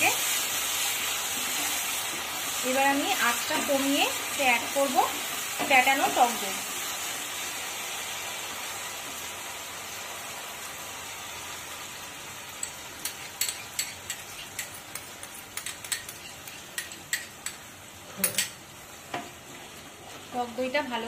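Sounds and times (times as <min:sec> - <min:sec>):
paste sizzling in a frying pan: 0:00.0 - 0:21.0
spoon clicking and tapping on bowl: 0:12.6 - 0:17.6.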